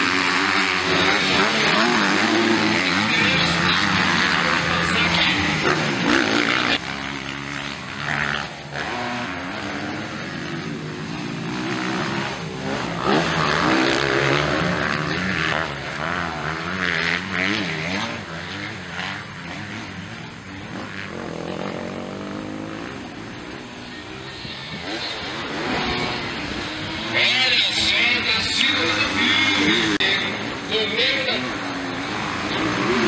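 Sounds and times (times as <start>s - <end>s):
motocross bikes revving: 0.0s - 33.0s.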